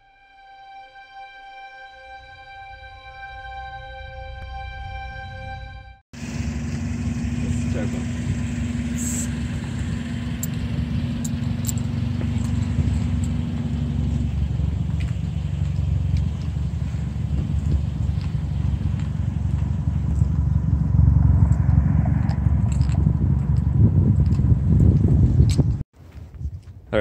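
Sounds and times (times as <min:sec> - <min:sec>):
car engine idling: 0:06.2 - 0:25.8.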